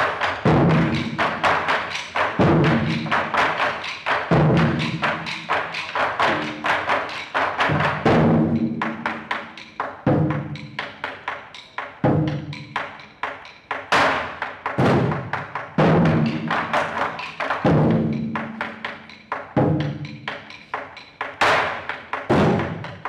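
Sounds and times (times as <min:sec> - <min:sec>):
heavy drum strokes booming: 0:02.3 - 0:03.4, 0:04.3 - 0:05.3, 0:07.6 - 0:09.0, 0:14.8 - 0:16.5.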